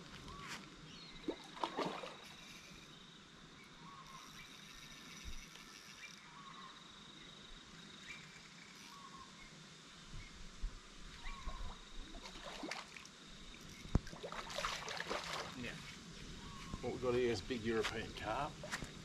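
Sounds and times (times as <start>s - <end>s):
fish splashing and thrashing: 1.2s - 2.4s, 13.9s - 15.6s.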